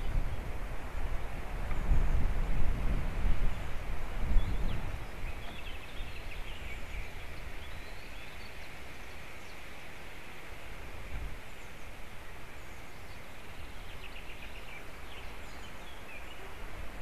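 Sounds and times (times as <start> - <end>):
wind buffeting microphone: 0.0 - 8.4, 10.7 - 12.0
steady outdoor hiss: 0.0 - 17.0
faint bird chirps: 11.5 - 16.7.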